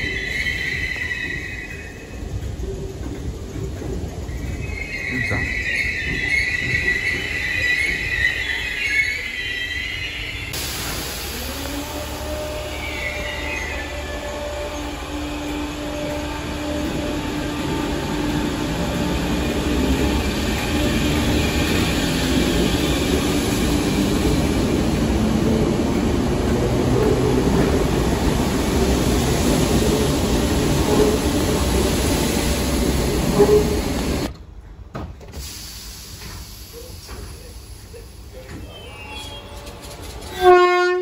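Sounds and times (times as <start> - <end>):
electric train rumbling: 0.0 - 41.0.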